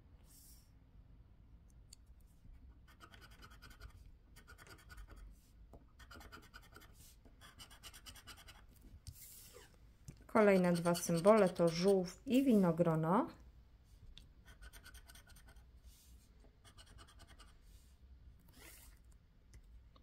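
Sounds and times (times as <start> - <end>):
scratch card being scraped: 2.9 - 5.2, 6.0 - 9.7, 10.4 - 12.2, 14.5 - 15.6, 16.6 - 17.6, 18.5 - 19.0.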